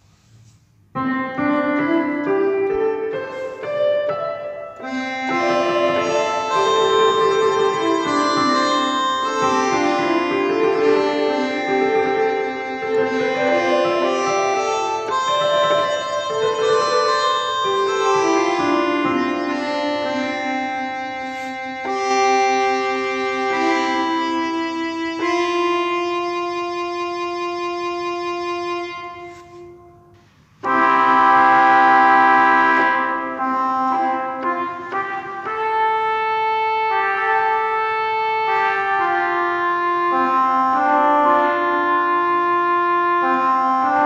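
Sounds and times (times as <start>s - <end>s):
organ-like keyboard chords: 0.9s - 44.0s.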